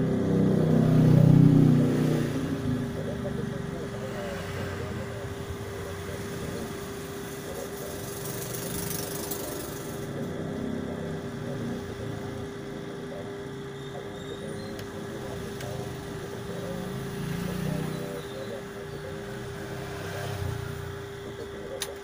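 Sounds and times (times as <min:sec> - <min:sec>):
small engine humming: 0:00.0 - 0:22.0.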